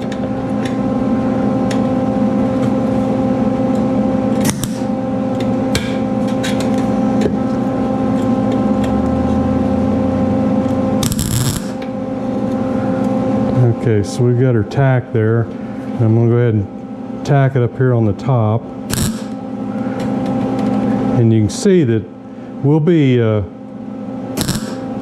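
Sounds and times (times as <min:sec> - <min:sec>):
steady hum: 0:00.0 - 0:25.0
welder crackling: 0:04.4 - 0:04.9, 0:11.0 - 0:11.8, 0:18.9 - 0:19.4, 0:24.4 - 0:24.9.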